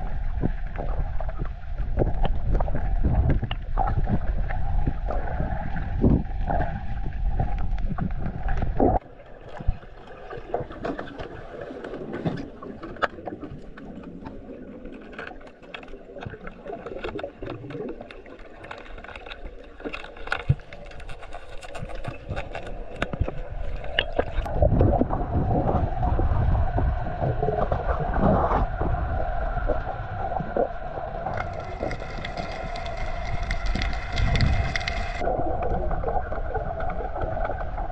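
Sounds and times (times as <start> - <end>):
low underwater rumble: 0.0 - 37.9
sharp clicks and crackles: 12.8 - 24.6, 31.2 - 37.9.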